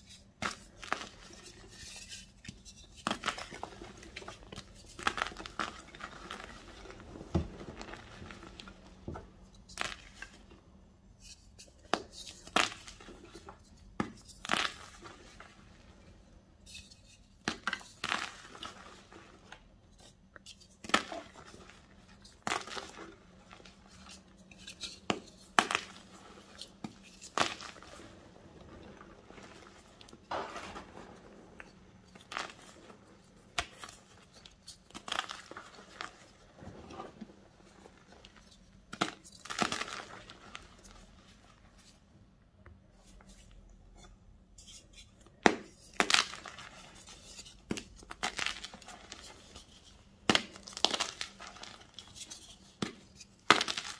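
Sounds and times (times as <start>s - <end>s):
powdery crumbling: 3.0s - 10.5s, 20.8s - 41.6s, 45.4s - 49.6s, 50.2s - 52.2s, 52.8s - 53.9s.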